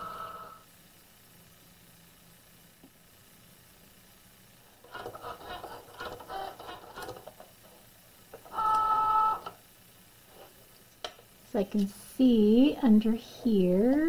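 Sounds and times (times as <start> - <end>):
cutting machine motors whirring: 0.0 - 0.6.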